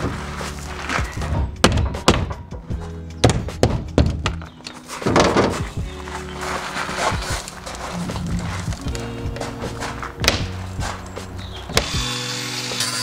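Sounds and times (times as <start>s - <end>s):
background music: 0.0s - 13.0s
wooden knocks and thunks: 1.0s - 5.9s, 8.1s - 11.9s.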